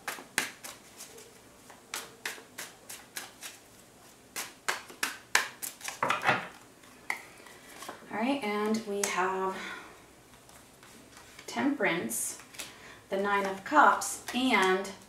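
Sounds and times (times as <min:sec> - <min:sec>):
cards being shuffled: 0:00.0 - 0:08.0, 0:10.2 - 0:11.6, 0:12.3 - 0:15.0.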